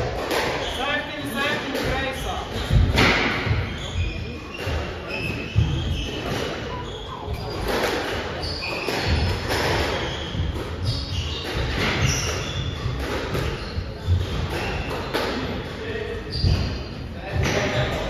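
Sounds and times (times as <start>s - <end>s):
shoe squeaks on court floor: 3.6s - 15.1s, 16.2s - 16.9s.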